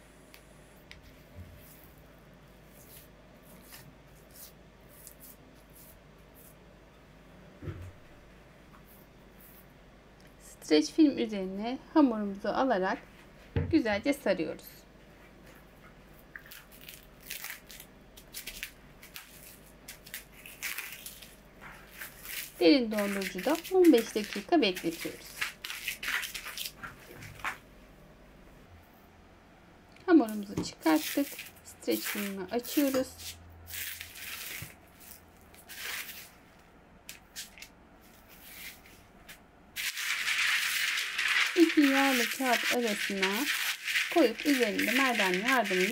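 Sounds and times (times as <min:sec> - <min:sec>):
dough and paper rustling: 0:01.0 - 0:06.6, 0:15.3 - 0:27.6, 0:30.2 - 0:45.9
plastic cling film crinkling: 0:16.3 - 0:27.6, 0:30.3 - 0:36.4, 0:37.1 - 0:45.9.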